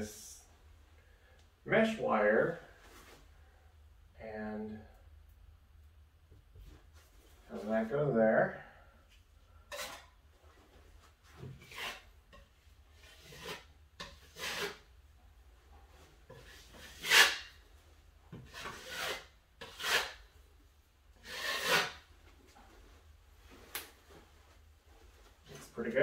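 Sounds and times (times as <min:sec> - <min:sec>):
drywall knife scraping compound: 0:09.6 - 0:14.9, 0:16.1 - 0:17.7, 0:18.3 - 0:20.4, 0:21.1 - 0:22.1.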